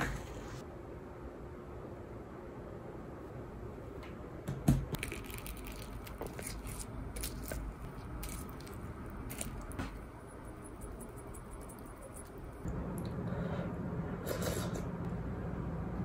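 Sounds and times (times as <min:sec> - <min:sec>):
pastry crust crunching: 0:05.0 - 0:09.8.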